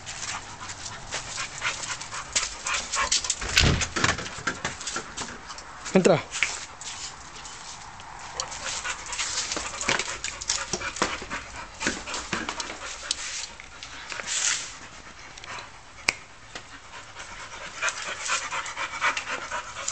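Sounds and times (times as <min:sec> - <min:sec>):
dogs panting hard: 0:00.0 - 0:03.8, 0:08.3 - 0:19.9.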